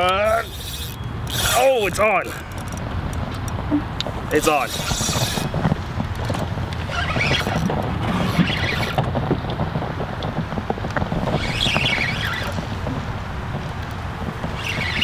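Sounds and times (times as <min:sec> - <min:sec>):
fishing reel clicking: 0:00.0 - 0:03.6, 0:04.6 - 0:05.5
wind rumble on microphone: 0:00.0 - 0:15.0.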